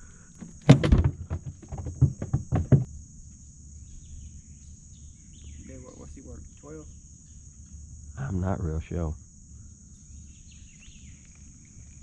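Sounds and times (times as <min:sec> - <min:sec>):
high insect drone: 0:00.0 - 0:12.0
sharp knocks: 0:00.5 - 0:02.9.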